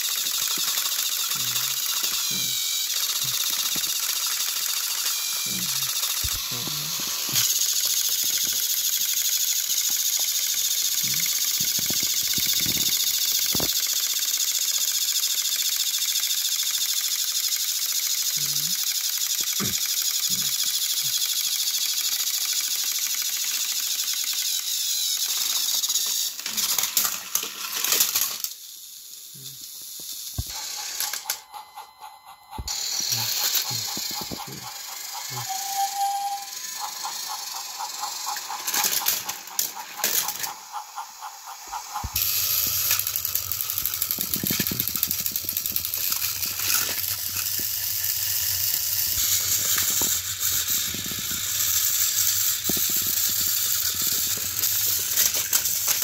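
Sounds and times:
thin steady tone: 0:00.0 - 0:56.0
toy train motors whirring: 0:00.0 - 0:56.0
fast ticking: 0:32.5 - 0:56.0.

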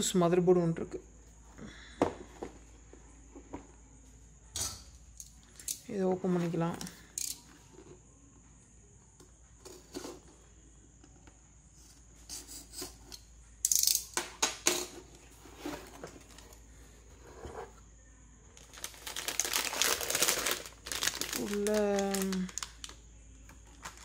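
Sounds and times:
plastic bag crinkling: 0:18.6 - 0:23.0, 0:23.6 - 0:24.0.

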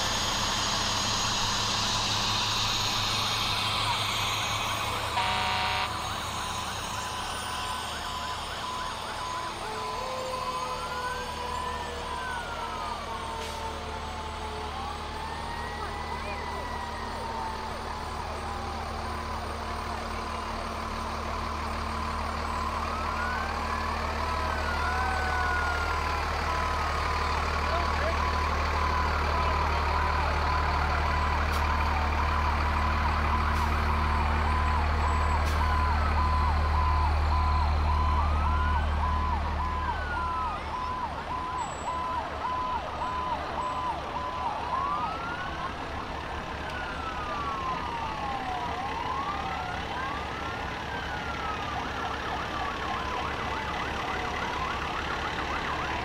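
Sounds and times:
sirens wailing: 0:00.0 - 0:56.0
truck diesel engine rumble: 0:00.0 - 0:56.0.

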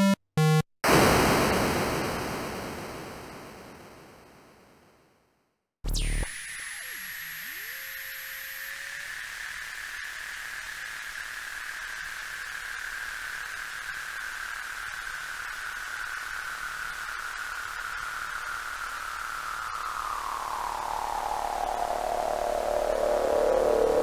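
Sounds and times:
filtered noise sweep: 0:05.9 - 0:09.0, 0:16.1 - 0:24.0.

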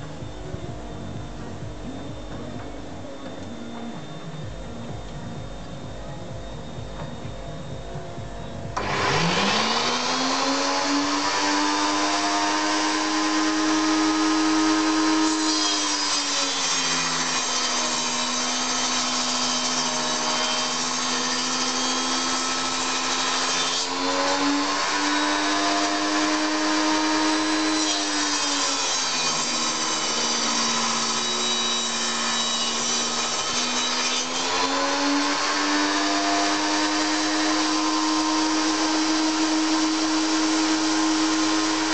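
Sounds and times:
table saw motor whining: 0:00.0 - 0:41.9
saw blade cutting wood: 0:08.8 - 0:41.9.

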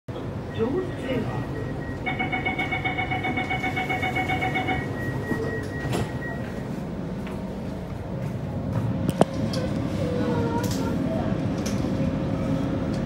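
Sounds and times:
train rumbling away: 0:00.1 - 0:13.0
door warning beeps: 0:00.5 - 0:06.7
train doors thumping shut: 0:05.1 - 0:06.6.

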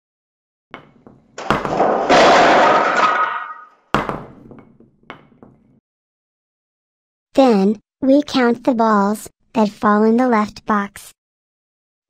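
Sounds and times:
balls clattering on wooden board: 0:00.8 - 0:05.8.

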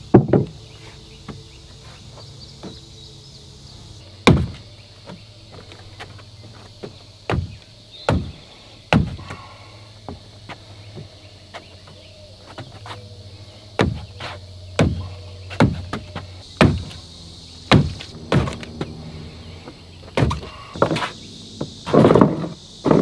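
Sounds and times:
wooden frame knocking and creaking: 0:00.1 - 0:00.6, 0:04.2 - 0:09.4, 0:13.8 - 0:14.2, 0:14.8 - 0:17.0, 0:17.7 - 0:19.0, 0:20.0 - 0:23.0
low engine hum: 0:09.4 - 0:22.9.

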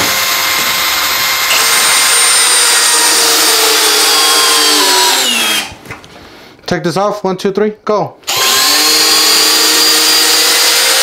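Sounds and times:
cordless drills driving screws: 0:00.0 - 0:05.8, 0:08.3 - 0:11.0.

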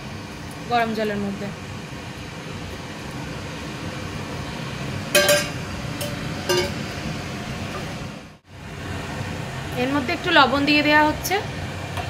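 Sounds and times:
steel bowl clinking on pot: 0:05.2 - 0:06.8.

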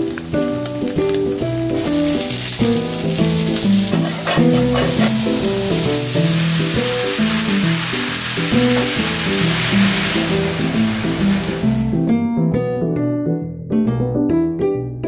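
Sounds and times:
vegetables sizzling in oil: 0:00.0 - 0:12.1
background music melody: 0:00.0 - 0:15.0
wooden spatula stirring: 0:03.8 - 0:05.5.

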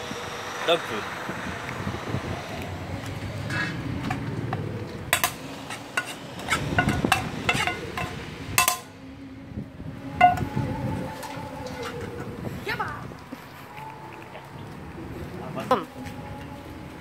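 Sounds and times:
steady low rumble: 0:00.0 - 0:15.6
metal spoon scraping frying pan: 0:05.1 - 0:08.9.

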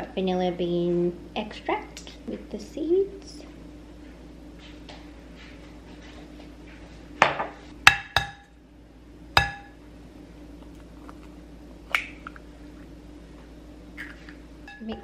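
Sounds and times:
egg knocking on bowl rim: 0:09.4 - 0:09.7.

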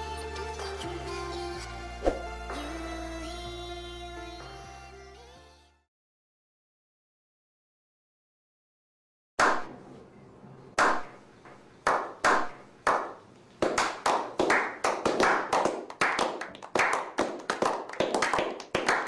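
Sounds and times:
group hand clapping: 0:09.4 - 0:09.7, 0:10.8 - 0:11.2, 0:11.8 - 0:19.0.

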